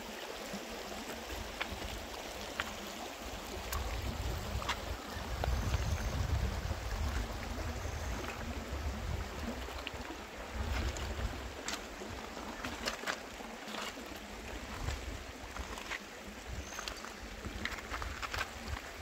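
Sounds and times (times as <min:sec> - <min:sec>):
river water over stones: 0:00.0 - 0:19.0
small splashes and clicks: 0:01.0 - 0:06.2, 0:09.2 - 0:19.0
wind rumble on microphone: 0:03.4 - 0:12.7, 0:14.2 - 0:19.0.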